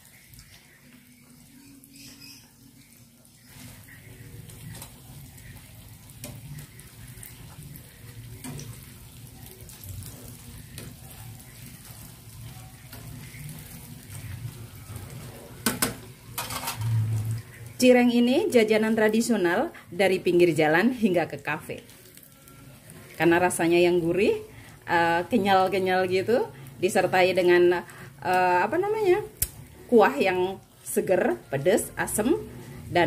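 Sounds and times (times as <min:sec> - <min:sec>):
fritters sizzling in oil: 0:00.0 - 0:33.0
metal utensil knocking pan: 0:15.6 - 0:16.9.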